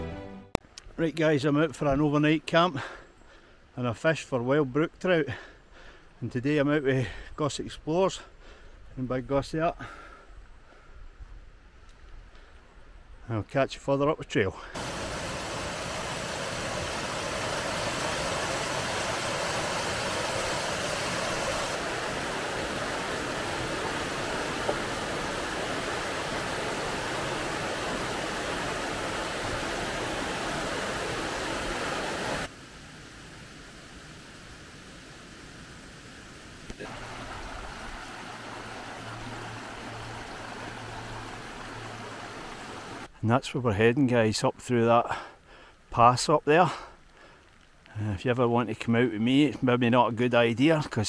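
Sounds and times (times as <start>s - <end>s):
water cascading over rocks: 14.7s - 43.1s
stream running over stones: 14.7s - 43.2s.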